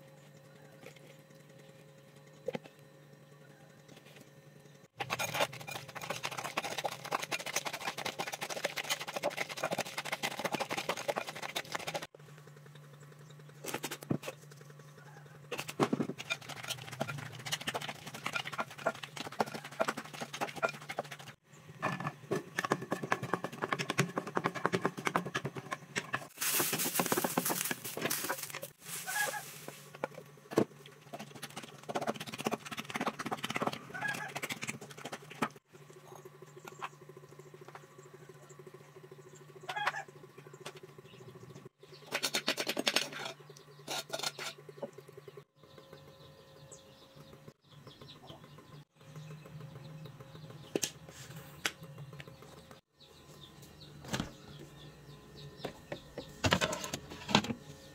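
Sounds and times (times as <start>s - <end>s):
pestle pounding wet paste in mortar: 5.0s - 12.0s, 15.9s - 25.8s.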